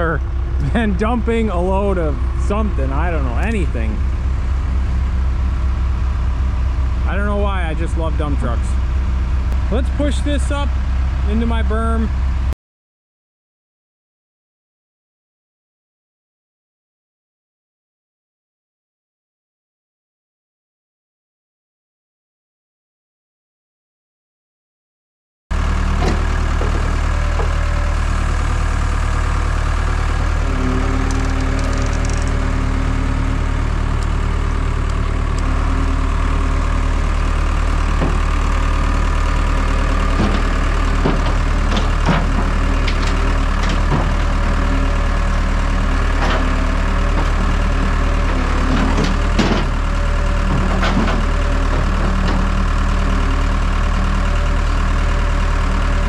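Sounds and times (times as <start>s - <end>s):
diesel engine running: 0.0s - 12.6s, 25.5s - 56.0s
sharp knocks and clanks: 25.9s - 27.8s, 38.0s - 38.3s, 40.1s - 44.4s, 48.3s - 49.8s, 50.5s - 52.5s.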